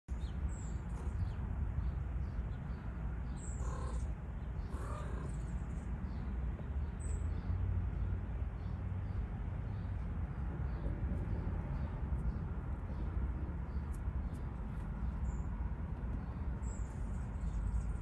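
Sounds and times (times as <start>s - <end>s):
steady low rumble: 0.5s - 18.0s
bird calls: 3.4s - 5.9s.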